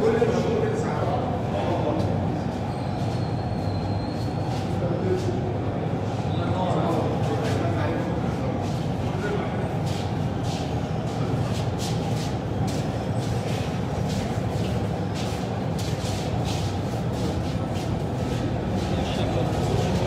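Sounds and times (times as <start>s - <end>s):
brushing and scuffing: 9.8s - 20.0s.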